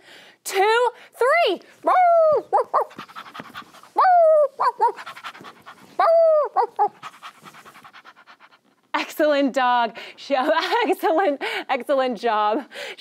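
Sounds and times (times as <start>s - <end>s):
woman panting like a dog: 1.0s - 8.8s, 9.9s - 10.2s, 11.3s - 11.7s, 12.7s - 13.0s
woman imitating dog bark: 1.8s - 2.9s, 4.0s - 5.0s, 6.0s - 7.0s
woman imitating short yips: 4.0s - 5.0s.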